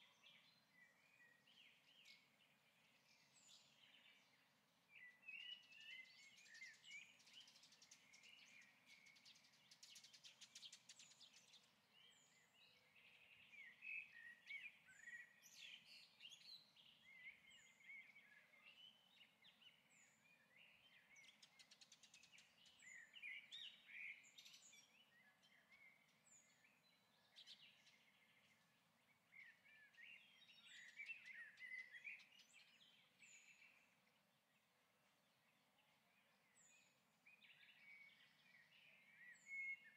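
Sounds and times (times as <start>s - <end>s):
birds twittering: 22.3s - 34.0s.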